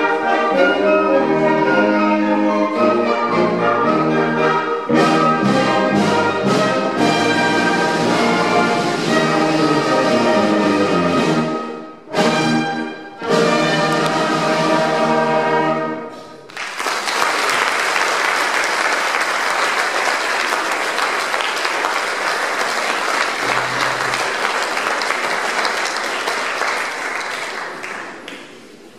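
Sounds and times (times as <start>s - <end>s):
band playing chords: 0.0s - 16.4s
audience applause: 16.5s - 28.9s.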